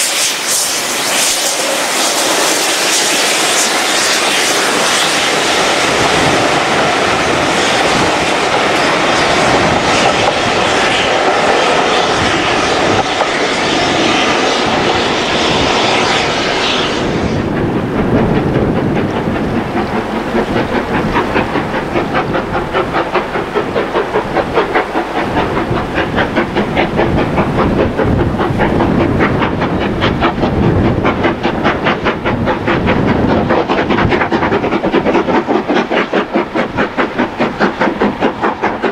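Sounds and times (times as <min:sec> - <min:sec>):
steam locomotive chuffing: 0:00.0 - 0:38.9
train coaches rolling on rails: 0:00.0 - 0:38.9.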